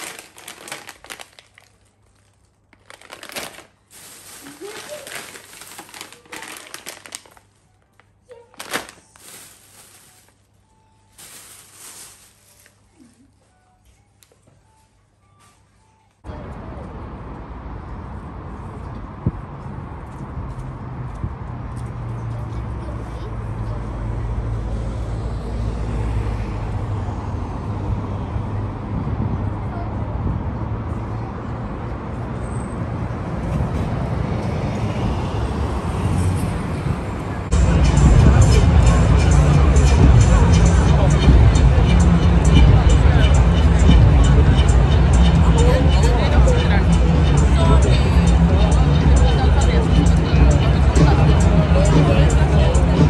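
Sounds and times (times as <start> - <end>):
road traffic rumble: 0.0 - 13.1, 16.2 - 53.0
plastic bag rustling and crinkling: 0.0 - 13.4.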